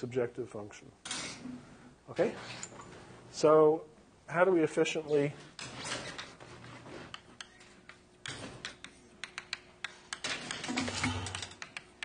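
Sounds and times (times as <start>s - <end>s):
pen taps and clicks writing: 7.1s - 10.6s.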